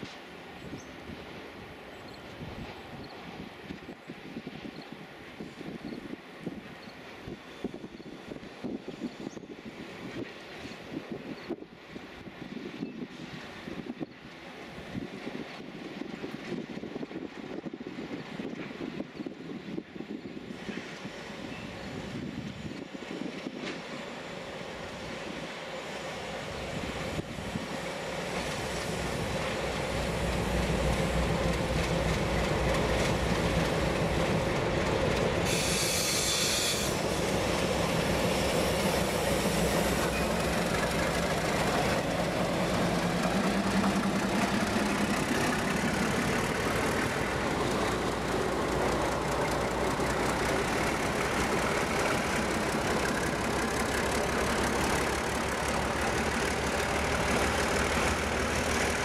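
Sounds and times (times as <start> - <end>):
diesel locomotives running: 0.0 - 59.0
burst of hiss: 35.4 - 40.0.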